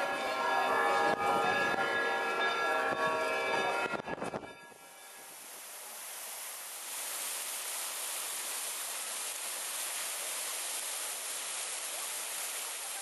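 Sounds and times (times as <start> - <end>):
fountain jets splashing: 4.9 - 13.0.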